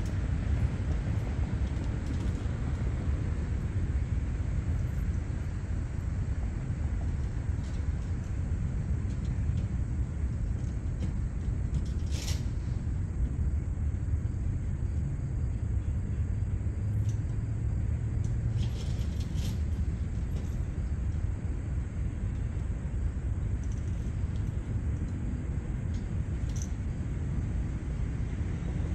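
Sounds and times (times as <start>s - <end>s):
low outdoor rumble: 0.0s - 28.9s.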